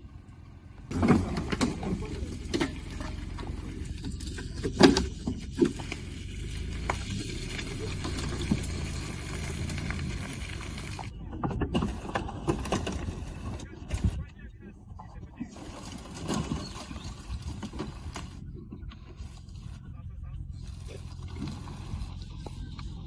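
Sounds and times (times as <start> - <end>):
suv engine running under load: 0.0 - 23.0
sharp knocks and crackles: 0.9 - 13.3.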